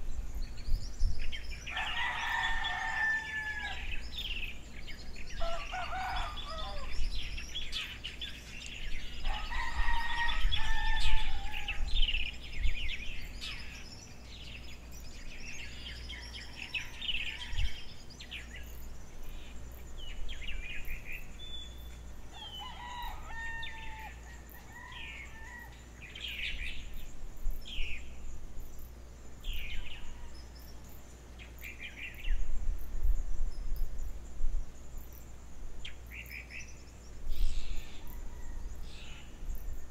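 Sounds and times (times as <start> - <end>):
small birds chirping: 0.0 - 39.9
rooster crowing: 1.7 - 4.1, 5.4 - 7.0, 9.2 - 12.0, 22.3 - 25.9, 37.9 - 39.3.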